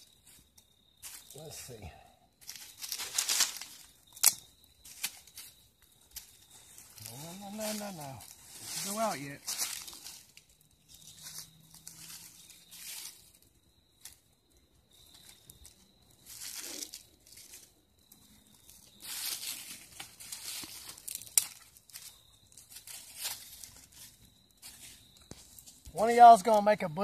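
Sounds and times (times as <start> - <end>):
dry leaves and twigs rustling: 0.0 - 27.0
twig snapping: 2.4 - 5.5, 20.0 - 22.1.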